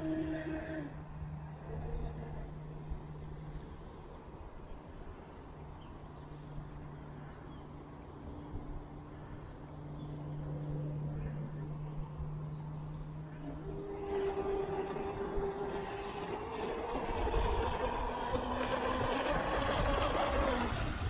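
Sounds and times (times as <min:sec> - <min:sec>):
electric motor humming: 0:10.3 - 0:21.0.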